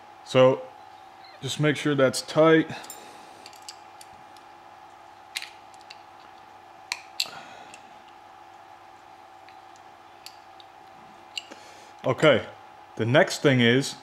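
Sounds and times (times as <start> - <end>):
faint steady hum: 0.0 - 14.0
pipe fittings clicking: 11.3 - 11.6.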